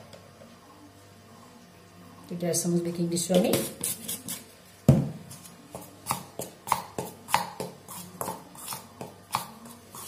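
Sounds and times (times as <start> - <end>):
spoon scraping metal bowl: 7.8 - 10.0.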